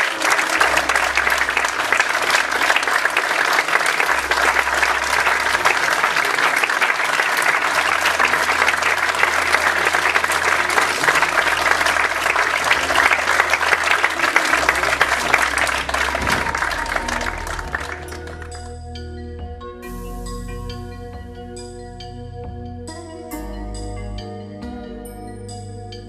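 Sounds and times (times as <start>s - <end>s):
audience applauding: 0.0s - 18.8s.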